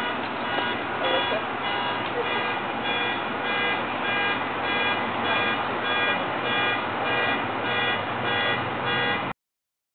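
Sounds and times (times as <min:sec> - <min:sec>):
high multi-tone electronic beeping: 0:00.0 - 0:09.2
steady background noise: 0:00.0 - 0:09.3.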